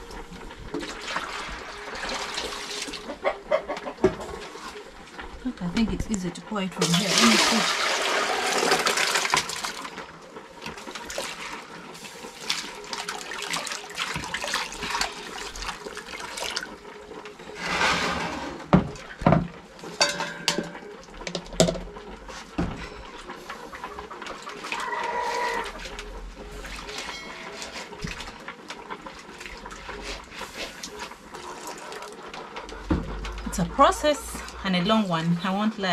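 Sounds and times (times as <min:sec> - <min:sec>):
water pouring and splashing: 0:00.0 - 0:21.4, 0:23.3 - 0:33.6
hands rinsing seeds in water: 0:06.7 - 0:09.9, 0:10.7 - 0:16.8
metal pots knocking: 0:18.6 - 0:21.9.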